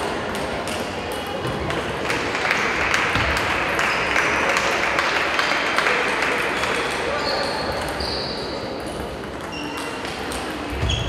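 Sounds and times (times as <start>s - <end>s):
audience applause: 2.0s - 6.6s.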